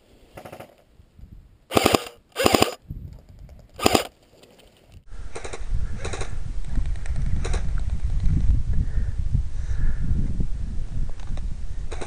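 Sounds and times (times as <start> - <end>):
airsoft gun bursts: 1.7 - 2.8, 3.8 - 4.1.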